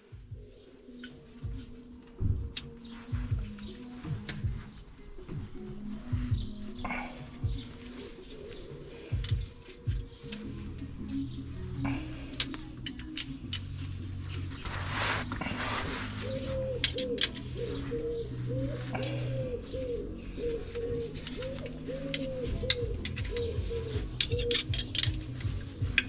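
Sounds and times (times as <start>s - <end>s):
pigeon cooing: 0.0s - 26.0s
tool clicks and taps: 22.1s - 26.0s.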